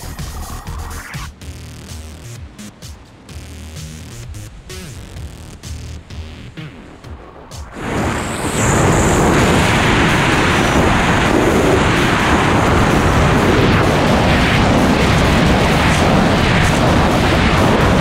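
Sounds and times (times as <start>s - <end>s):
wind buffeting microphone: 4.2s - 18.0s.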